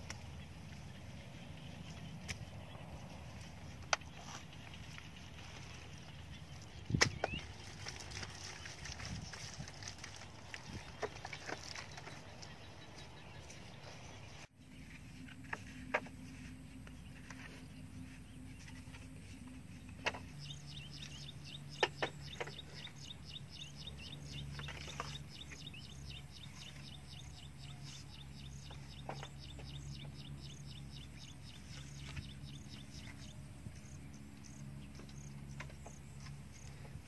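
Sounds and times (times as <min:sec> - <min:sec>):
low background hum: 0:00.0 - 0:37.0
bamboo poles knocking together: 0:19.8 - 0:20.4.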